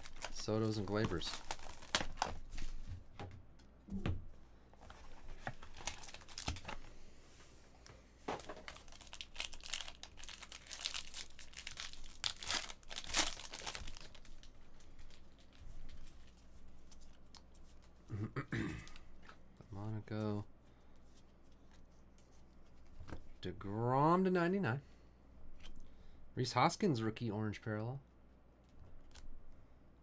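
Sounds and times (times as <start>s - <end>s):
plastic and foil wrapping crinkling: 0.0s - 2.8s, 5.2s - 6.9s, 8.4s - 17.1s.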